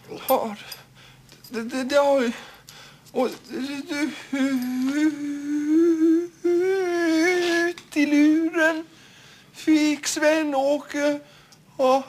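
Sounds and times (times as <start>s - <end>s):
man humming: 3.2s - 8.8s.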